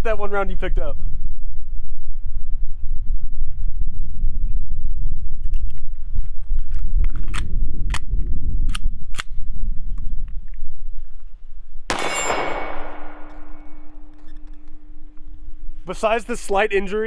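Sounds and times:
pistol shot: 0:11.9 - 0:14.1.

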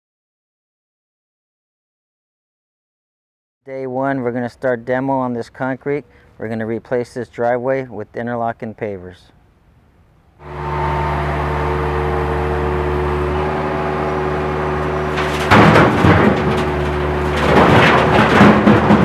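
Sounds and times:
engine running: 0:10.4 - 0:19.0
concrete crashing into steel truck bed: 0:13.2 - 0:19.0.

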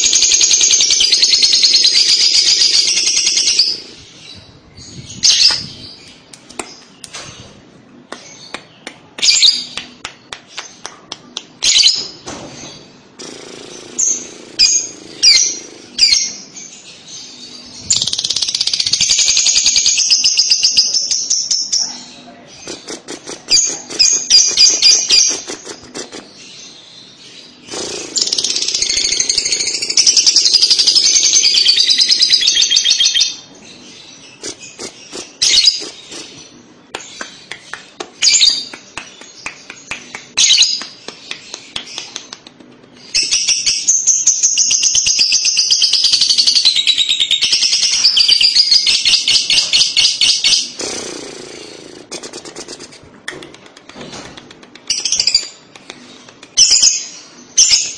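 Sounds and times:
bird chirps and clicks: 0:34.4 - 0:45.7, 0:52.1 - 0:57.8.

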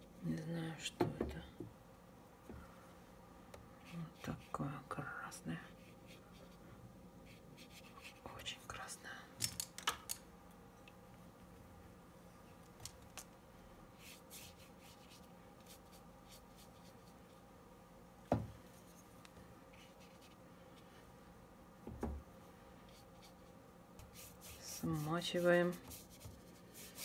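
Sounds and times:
low steady hum: 0:00.0 - 0:27.0
brush strokes on wet paper: 0:14.0 - 0:17.4, 0:18.7 - 0:21.0, 0:22.8 - 0:27.0
soft knock: 0:18.3 - 0:18.6.

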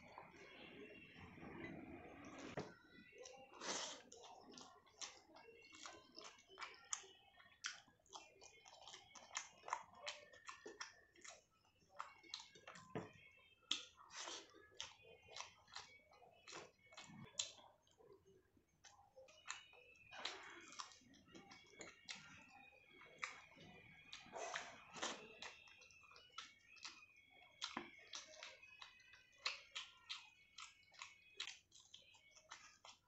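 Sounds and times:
person chewing: 0:02.3 - 0:12.8, 0:13.7 - 0:18.2, 0:18.8 - 0:23.5, 0:24.1 - 0:33.0.

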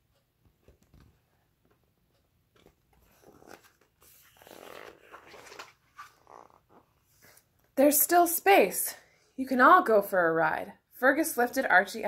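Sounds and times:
book rustling in hands: 0:02.5 - 0:07.6.

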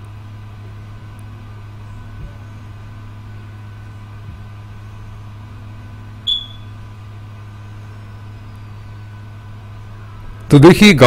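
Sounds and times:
car cabin hum while driving: 0:00.0 - 0:11.0
short high-pitched ping: 0:06.3 - 0:06.7.

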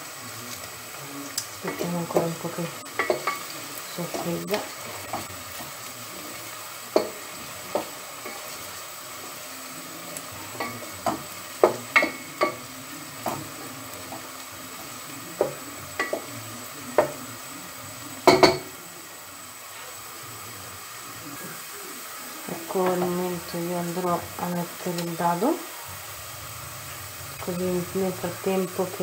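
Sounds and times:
vegetables sizzling: 0:00.0 - 0:29.0
wooden spoon knocking against pot: 0:18.2 - 0:18.7.

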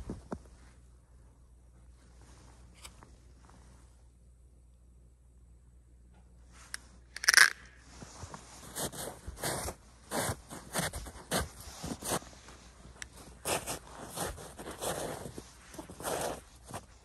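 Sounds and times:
footsteps crunching through snow: 0:07.9 - 0:17.0.

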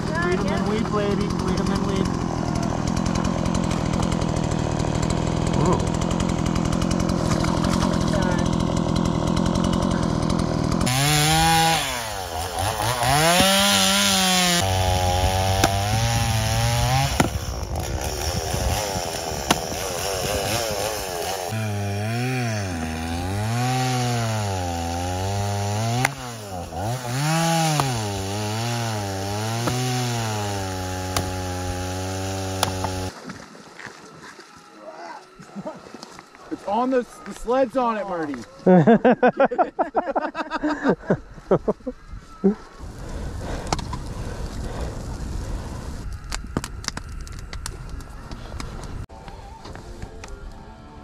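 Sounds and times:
chainsaw engine revving: 0:00.0 - 0:33.2.

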